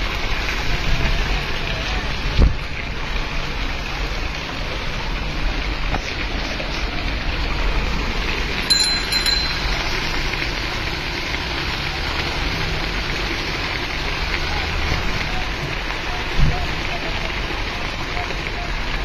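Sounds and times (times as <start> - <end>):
rain on flooded street: 0.0 - 19.0
rickshaw moving through water: 0.0 - 19.0
high double bell ring: 8.6 - 10.2.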